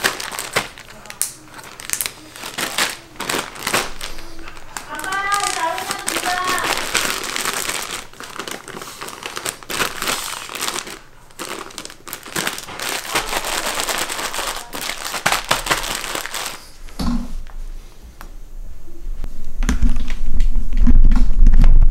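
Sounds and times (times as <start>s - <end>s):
plastic bags crinkling: 0.0s - 17.0s.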